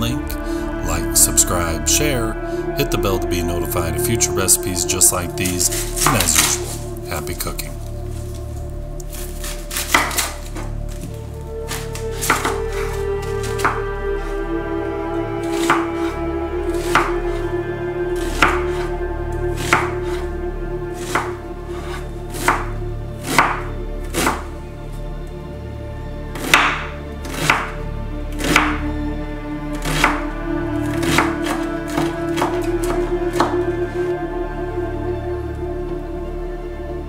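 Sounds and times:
soft background music: 0.0s - 37.0s
knife chopping on wooden board: 5.7s - 6.8s, 9.1s - 11.1s, 11.7s - 14.3s, 15.4s - 17.5s, 18.2s - 18.9s, 19.6s - 20.3s, 21.0s - 24.5s, 26.3s - 28.9s, 29.8s - 33.7s.

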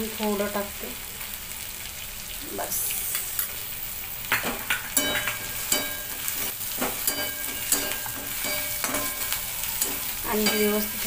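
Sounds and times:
onions sizzling in oil: 0.0s - 11.0s
metal spatula scraping a pan: 4.8s - 11.0s
pan ringing: 4.9s - 6.3s, 7.0s - 11.0s.

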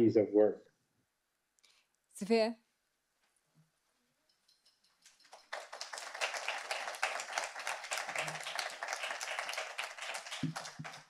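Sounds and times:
audience applauding: 5.3s - 11.0s.

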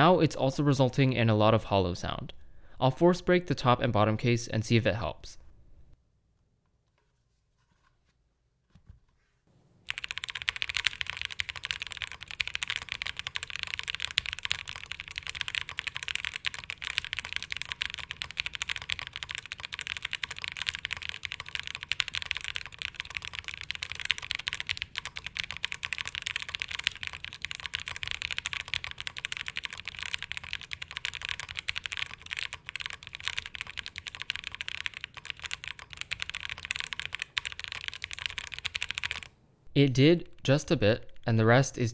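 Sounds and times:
fast typing on mechanical keyboard: 9.9s - 39.3s.

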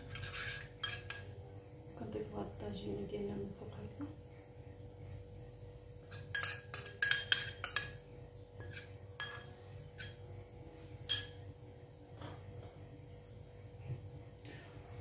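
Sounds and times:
spoon clinking against ceramic bowl: 6.1s - 8.0s, 8.6s - 10.2s, 11.1s - 11.4s.

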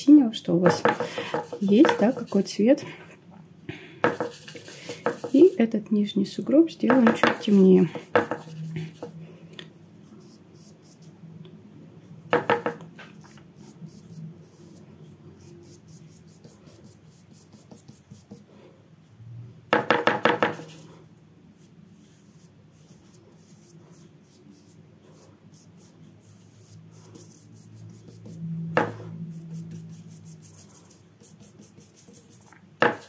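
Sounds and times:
paintbrush rattling in container: 0.7s - 2.5s
brush strokes on paper: 0.7s - 2.6s, 4.1s - 5.7s, 6.9s - 9.2s, 20.6s - 33.0s.

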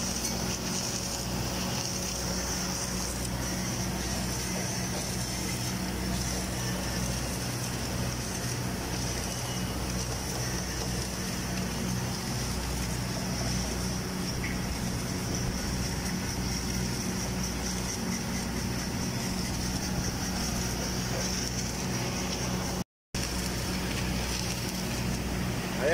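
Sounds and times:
steady high hiss: 0.0s - 25.9s
welding power source hum: 0.0s - 25.9s.

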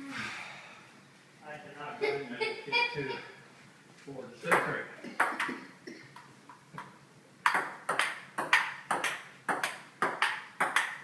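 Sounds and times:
ping pong ball clicking: 6.2s - 11.0s.

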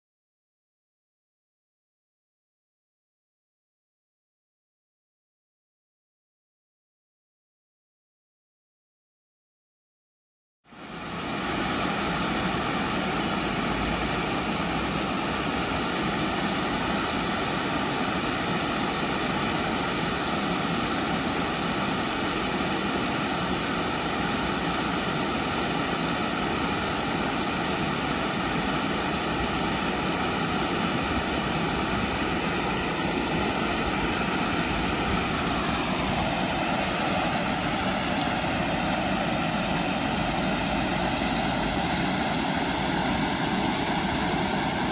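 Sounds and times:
water rushing over a weir: 10.7s - 44.9s.

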